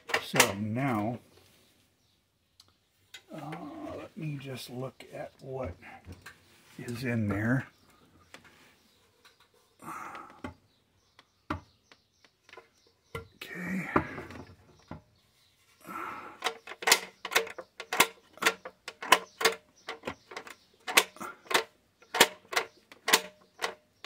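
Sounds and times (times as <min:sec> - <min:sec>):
sharp metallic clicks and knocks: 0:00.0 - 0:00.8, 0:10.1 - 0:15.1, 0:16.4 - 0:24.0.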